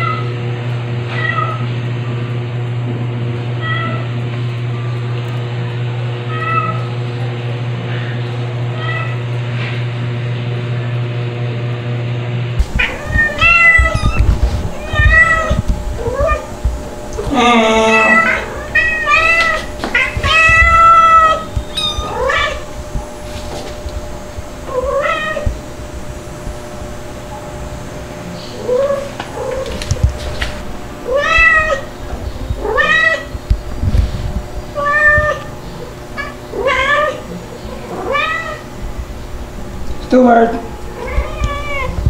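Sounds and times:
kitten meowing: 12.8s - 16.5s, 17.2s - 22.7s, 31.0s - 31.9s, 32.6s - 33.3s, 41.0s - 42.0s.

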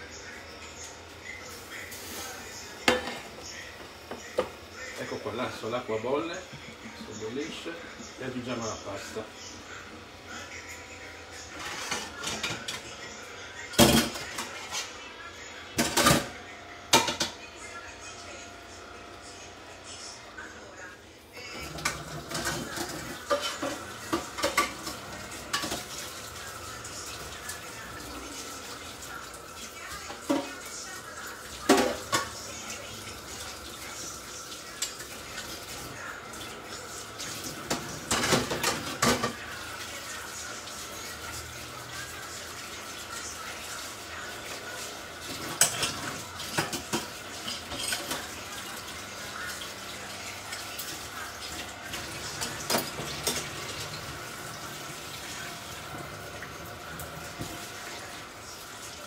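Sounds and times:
cookware clattering: 2.8s - 3.4s, 15.8s - 17.5s, 21.6s - 26.0s, 37.6s - 39.5s, 45.3s - 48.4s, 51.9s - 54.2s.

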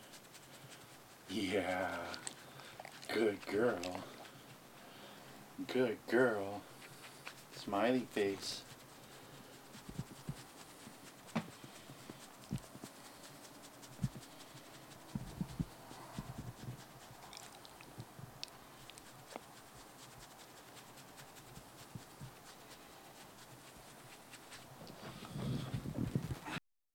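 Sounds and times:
faint dog sounds: 0.0s - 26.6s
soft thumps and rustling: 9.8s - 13.0s, 24.5s - 26.6s.

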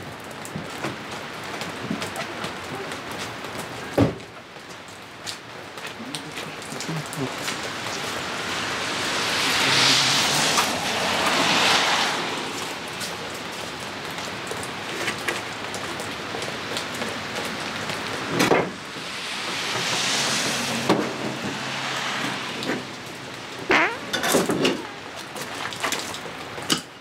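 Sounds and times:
rain falling on gravel: 0.0s - 27.0s
tyres hissing on wet road: 1.0s - 23.7s.

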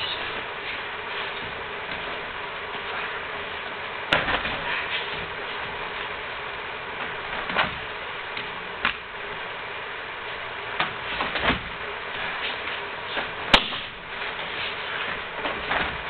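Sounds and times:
steady background hiss: 0.0s - 16.0s
bodies thudding on mats: 0.4s - 6.1s, 7.0s - 9.1s, 10.8s - 16.0s
swish of feet and clothing: 14.1s - 16.0s.

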